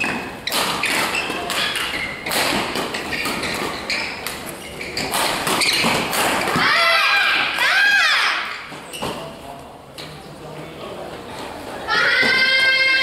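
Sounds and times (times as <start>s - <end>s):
footfalls with squeaks: 0.0s - 6.7s, 8.6s - 9.4s
rackets striking shuttlecock: 0.0s - 6.7s
voices in echoing hall: 0.0s - 13.0s.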